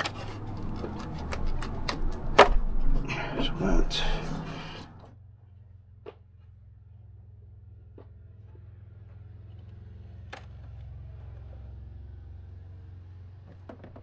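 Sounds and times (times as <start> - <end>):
steady low rumble: 0.1 - 5.9.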